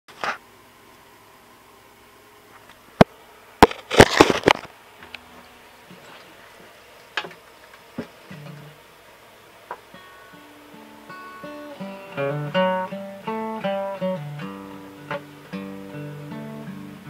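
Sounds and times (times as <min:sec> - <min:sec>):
rustling: 0:03.6 - 0:04.7.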